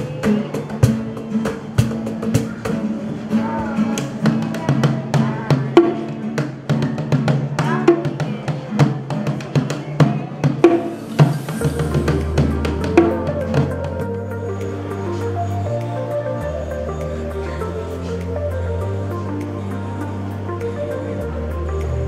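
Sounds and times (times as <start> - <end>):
drums beating: 0.0 - 14.4
boy singing: 3.3 - 6.2.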